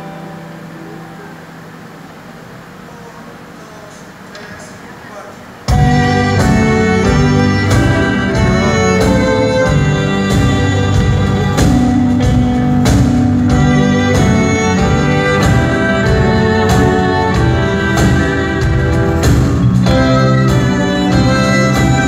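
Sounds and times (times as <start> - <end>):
guitar: 0.0 - 3.6, 5.6 - 22.0
live band music: 0.0 - 22.0
steady drum beat: 5.6 - 22.0
bowed strings sustained notes: 5.7 - 22.0.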